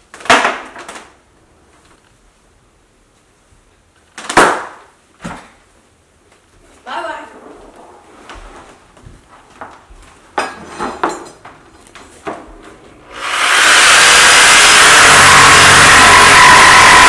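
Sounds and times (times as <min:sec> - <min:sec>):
reciprocating saw cutting countertop: 0:13.0 - 0:17.0.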